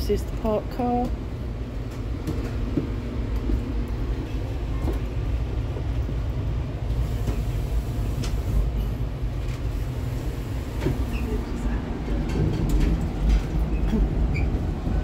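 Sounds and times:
train rumbling on track: 0:00.0 - 0:15.0.

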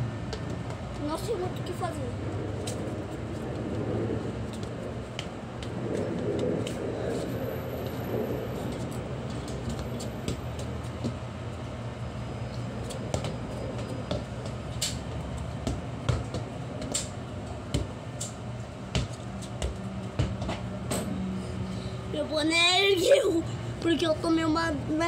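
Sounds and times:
low background hum: 0:00.0 - 0:25.0
football kicked and bouncing: 0:00.2 - 0:01.6, 0:04.5 - 0:06.8, 0:08.7 - 0:11.3, 0:12.8 - 0:21.0.

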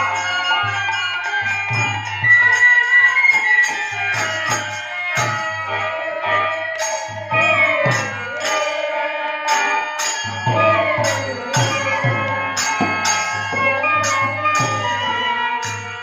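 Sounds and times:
bamboo flute melody: 0:00.0 - 0:16.0
hand cymbals struck: 0:00.0 - 0:16.0
harmonium: 0:00.0 - 0:16.0
hand drum: 0:06.8 - 0:16.0.

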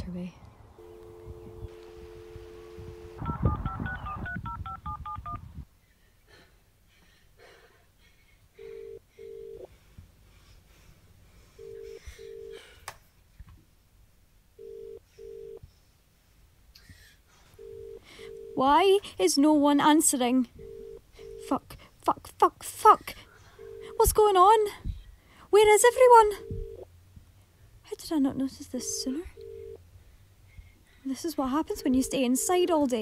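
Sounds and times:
double telephone ringing tone: 0:00.8 - 0:05.4, 0:08.6 - 0:09.7, 0:14.6 - 0:15.6, 0:17.6 - 0:18.8, 0:20.6 - 0:21.6, 0:23.6 - 0:24.3, 0:26.2 - 0:26.9, 0:28.8 - 0:29.8, 0:31.6 - 0:32.8
telephone dial tone: 0:00.8 - 0:05.4, 0:08.7 - 0:09.7, 0:14.6 - 0:15.6, 0:17.6 - 0:18.6, 0:20.6 - 0:21.6, 0:23.6 - 0:24.2, 0:26.3 - 0:26.9, 0:28.8 - 0:29.8
keypad dialing tones: 0:00.8 - 0:05.5, 0:17.6 - 0:18.6, 0:20.6 - 0:21.6, 0:23.6 - 0:24.3, 0:26.2 - 0:26.8, 0:28.8 - 0:29.8, 0:31.6 - 0:32.8.

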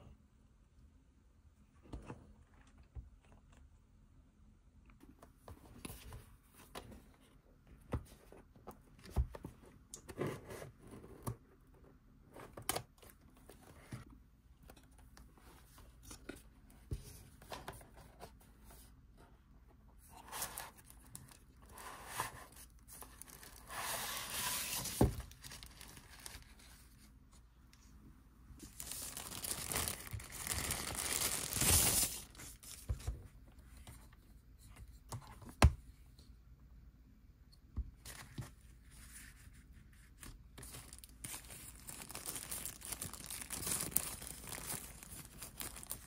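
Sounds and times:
plastic wrapping crinkling: 0:28.6 - 0:32.7, 0:40.6 - 0:46.0
packaging tearing: 0:28.8 - 0:32.2.

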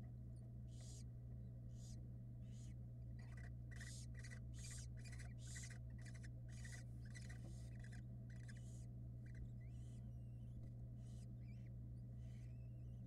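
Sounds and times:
low electrical hum: 0:00.0 - 0:13.0
barn owls hissing: 0:01.8 - 0:10.0.

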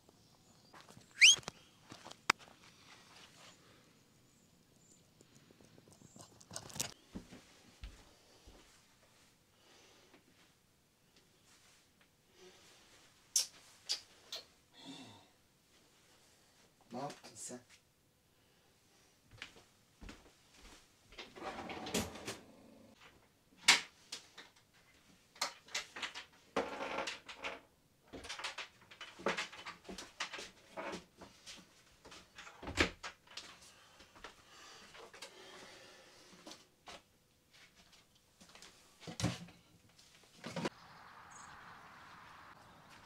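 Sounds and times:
rustling: 0:05.3 - 0:09.3.

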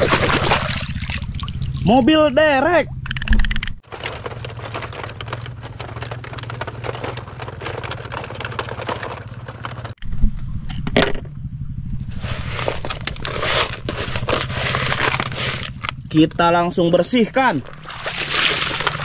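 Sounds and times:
toy truck wheels crackling on dirt: 0:03.8 - 0:10.0, 0:12.1 - 0:16.2, 0:17.4 - 0:19.0.

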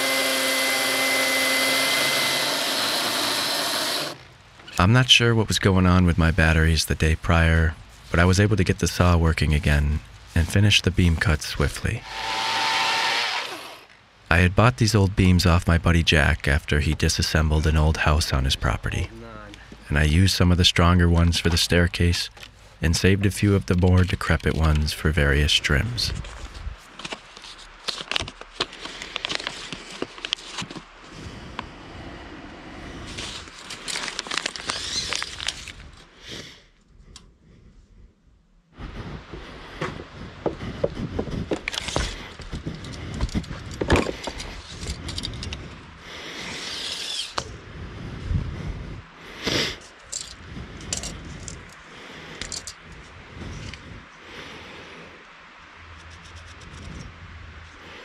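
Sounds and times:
tools scraping on wooden beams: 0:00.0 - 0:04.2, 0:12.0 - 0:13.9, 0:46.5 - 0:47.5
tape measure on beam: 0:46.5 - 0:47.5.

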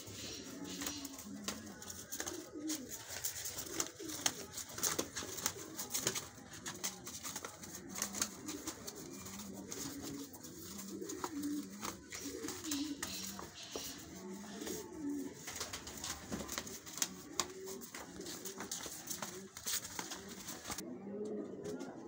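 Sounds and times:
wings slapping the ground: 0:00.0 - 0:20.8
pigeons cooing: 0:00.0 - 0:22.0.

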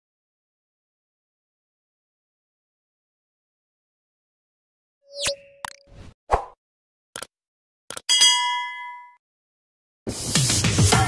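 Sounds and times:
short clicks: 0:07.9 - 0:08.1
bright bell-like ding: 0:08.1 - 0:09.2.

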